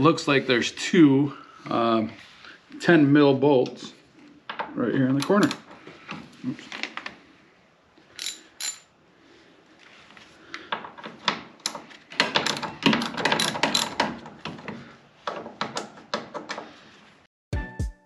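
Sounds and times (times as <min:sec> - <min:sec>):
hand ratchet clicking: 0:08.2 - 0:08.8, 0:11.6 - 0:14.7.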